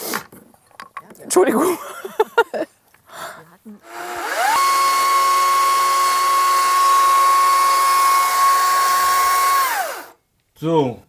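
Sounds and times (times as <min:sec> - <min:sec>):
chainsaw cutting wood: 0:03.8 - 0:10.2.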